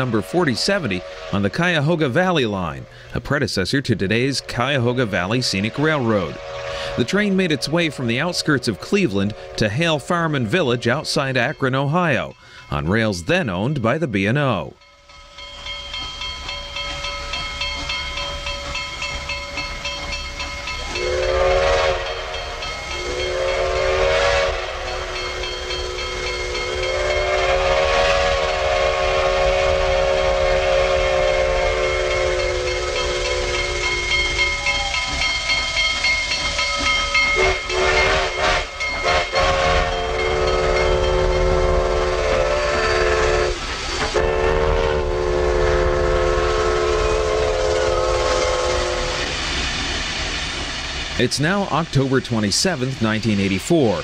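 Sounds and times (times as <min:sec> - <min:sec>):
steam locomotive whistle: 0:00.0 - 0:03.0, 0:04.1 - 0:11.4, 0:20.7 - 0:49.4
steam hissing: 0:00.0 - 0:03.2, 0:04.1 - 0:12.7, 0:15.0 - 0:54.0.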